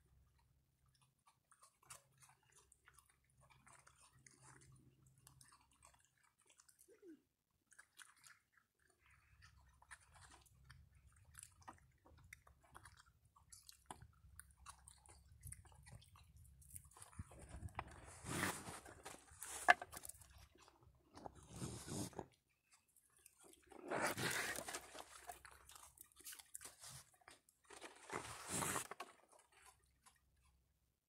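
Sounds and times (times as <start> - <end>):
raccoons crunching dry food: 7.7 - 30.6.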